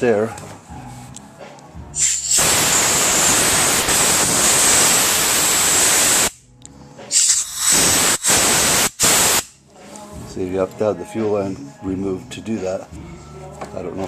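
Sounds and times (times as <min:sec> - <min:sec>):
compressed air hissing: 0:02.0 - 0:06.4, 0:07.1 - 0:09.6.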